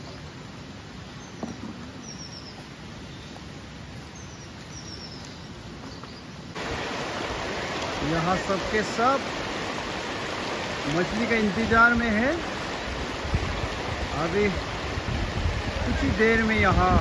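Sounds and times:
river rushing over stones: 6.5 - 17.0.

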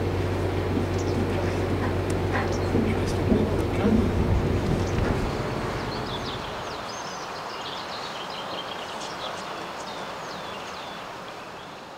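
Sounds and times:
low rumble: 0.0 - 7.0
outdoor background hiss: 0.0 - 11.9
small birds chirping: 0.8 - 3.9, 4.6 - 11.9.

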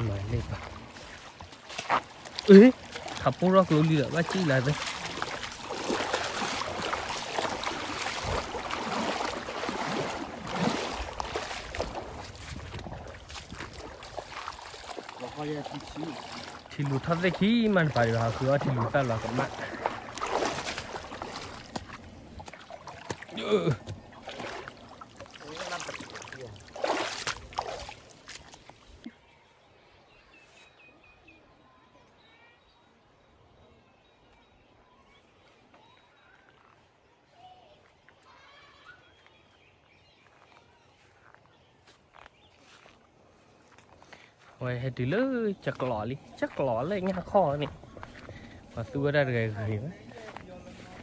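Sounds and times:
water splashing from wading: 0.0 - 29.1, 45.5 - 51.0.

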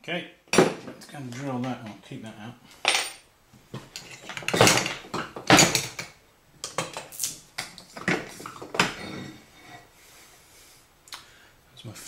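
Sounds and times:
metal tools clattering: 2.8 - 3.3, 3.9 - 6.1.

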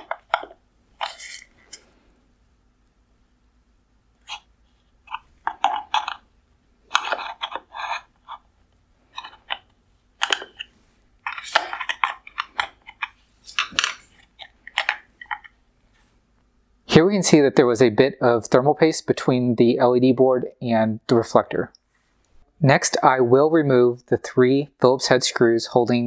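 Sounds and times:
screwdriver clicking and scraping metal: 0.0 - 1.8, 5.1 - 6.2, 6.9 - 8.4, 9.1 - 15.5.

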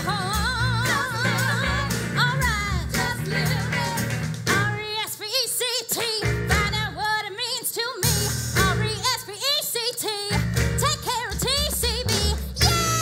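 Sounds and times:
live band playing: 0.0 - 5.0, 6.2 - 7.0, 8.0 - 9.1, 10.3 - 13.0
woman singing: 0.0 - 13.0.

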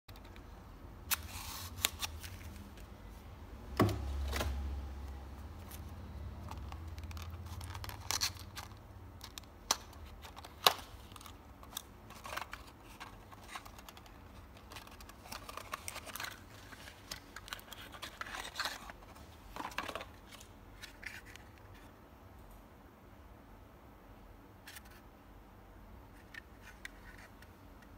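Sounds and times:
cardboard rustling: 10.0 - 21.9.

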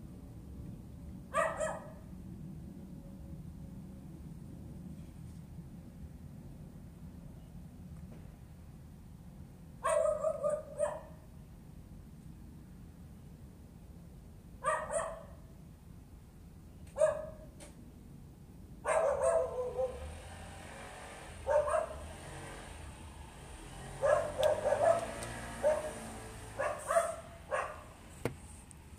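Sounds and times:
dog barking: 1.3 - 2.0, 9.8 - 11.2, 14.6 - 15.5, 17.0 - 17.5, 18.8 - 20.1, 21.4 - 22.0, 24.0 - 28.0.

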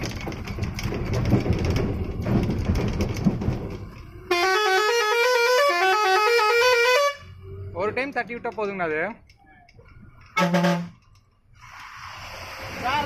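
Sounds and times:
cab rattles: 0.0 - 4.2
heavy truck engine: 0.0 - 13.0
musical truck horn: 4.3 - 7.4, 10.4 - 11.0.

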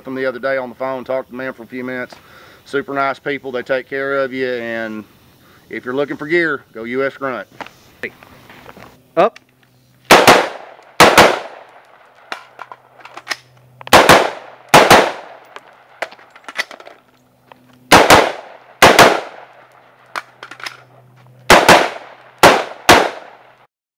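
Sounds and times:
rifle shots in double taps: 10.1 - 12.5, 13.9 - 15.8, 17.9 - 20.3, 21.5 - 23.5.

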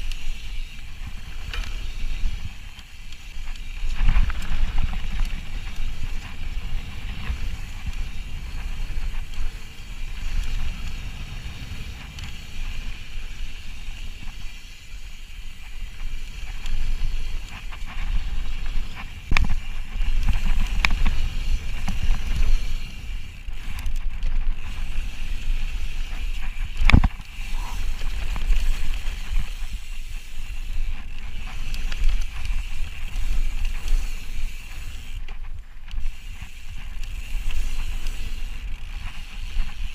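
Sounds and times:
wind on microphone: 0.0 - 14.5
bike rattling over bumps: 0.0 - 39.9.

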